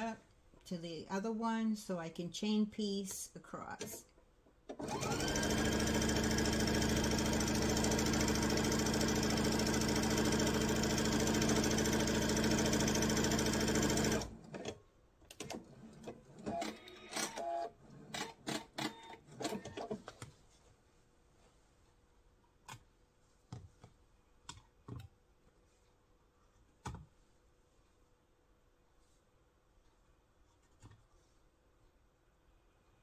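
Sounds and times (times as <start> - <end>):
sewing machine stitching: 4.7 - 20.0.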